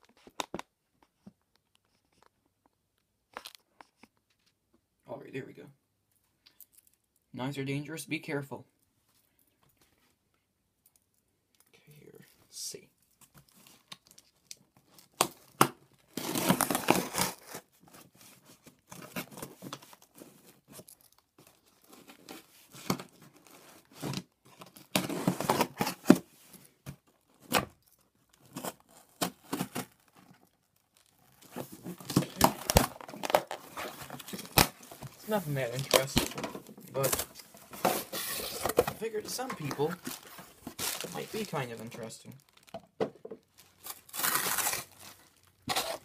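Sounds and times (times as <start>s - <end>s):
packing tape tearing off cardboard: 15.0s - 26.3s, 28.4s - 41.8s, 43.6s - 46.0s.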